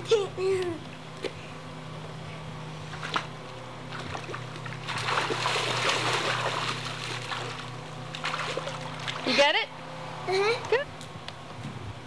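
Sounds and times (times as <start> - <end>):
steady low hum: 0.0 - 12.0
pool water splashing: 2.9 - 9.5.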